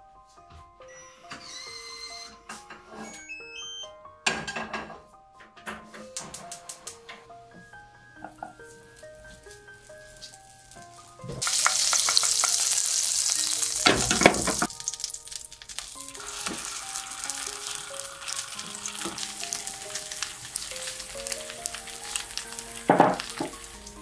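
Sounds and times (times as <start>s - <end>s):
soft background music: 0.0s - 24.0s
butter sizzling in a frying pan: 8.2s - 24.0s.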